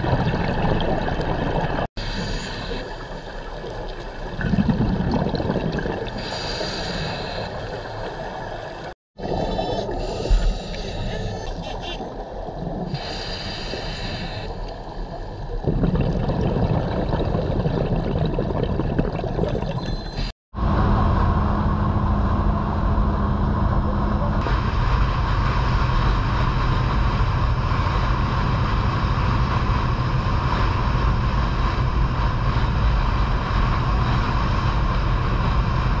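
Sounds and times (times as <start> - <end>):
wind: 0.0 - 5.0, 5.9 - 15.8, 19.7 - 36.0
underwater noise: 0.0 - 21.2.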